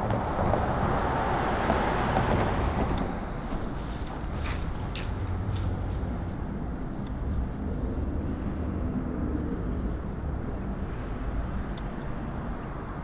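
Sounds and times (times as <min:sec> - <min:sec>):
passing vehicles rumble: 0:00.0 - 0:13.0.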